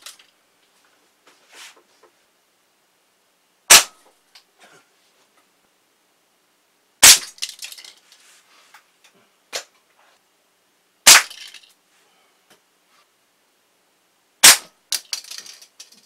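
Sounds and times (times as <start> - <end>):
air rifle shots: 3.7 - 4.0, 11.0 - 11.4, 14.4 - 14.7
toy car clattering on floor: 7.3 - 8.2, 11.3 - 11.7, 14.9 - 16.0.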